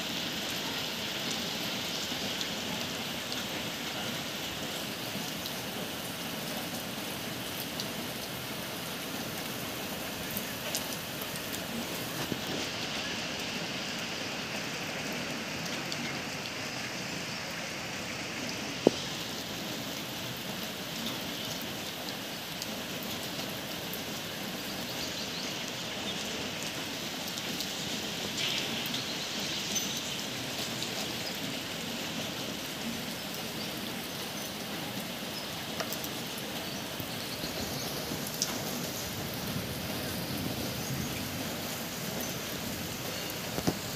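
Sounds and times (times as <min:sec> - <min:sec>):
steady rain: 0:00.0 - 0:43.9
close raindrop hits: 0:18.8 - 0:19.6, 0:26.2 - 0:30.1, 0:38.0 - 0:43.9.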